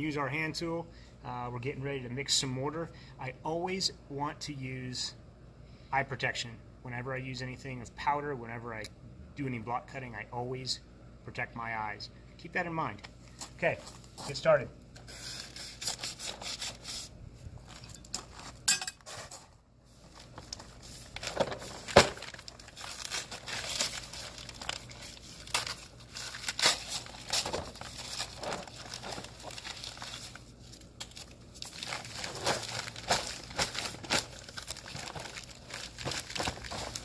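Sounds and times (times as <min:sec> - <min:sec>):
paper sack crinkling and tearing: 0:20.1 - 0:37.0.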